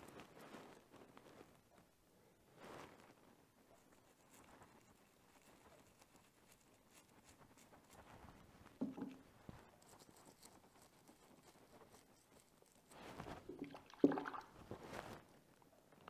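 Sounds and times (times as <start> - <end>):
water splashing in a bucket: 13.4 - 14.6.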